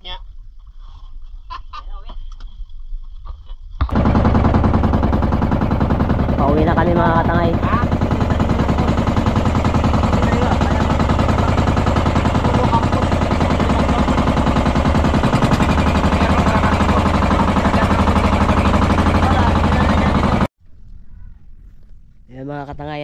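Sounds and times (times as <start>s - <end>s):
small boat engine chugging: 3.9s - 21.5s.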